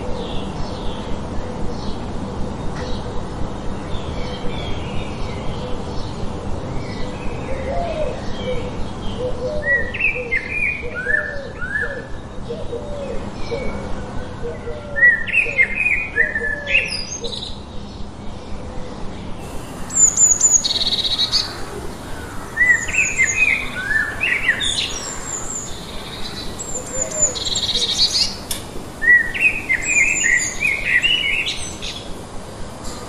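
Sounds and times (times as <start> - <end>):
small birds chirping: 19.4 - 33.0.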